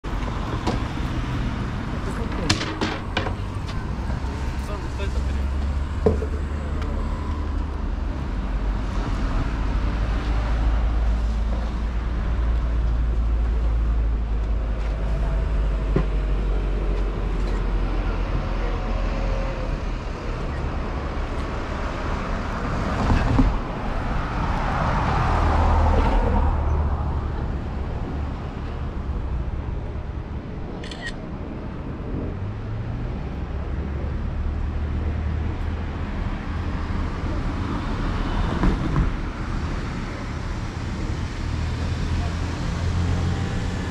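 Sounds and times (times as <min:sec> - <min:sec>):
road traffic rumble: 0:00.0 - 0:43.9
vehicle passing by: 0:20.8 - 0:29.8.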